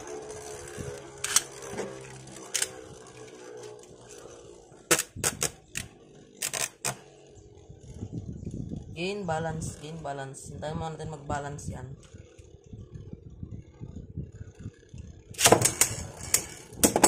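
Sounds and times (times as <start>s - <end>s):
stick clicking against spinning top: 0.0s - 3.4s, 4.9s - 7.0s, 15.4s - 17.0s
spinning top whirring: 0.0s - 9.0s, 11.3s - 17.0s.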